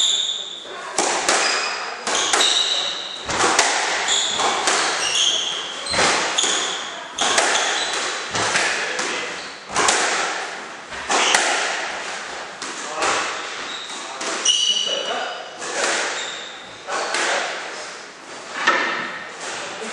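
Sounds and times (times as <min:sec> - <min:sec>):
shoes squeaking on court floor: 0:00.0 - 0:00.7, 0:01.3 - 0:09.9, 0:11.0 - 0:11.5, 0:13.1 - 0:17.4
squash ball hitting rackets and walls: 0:00.0 - 0:17.8, 0:18.4 - 0:19.7.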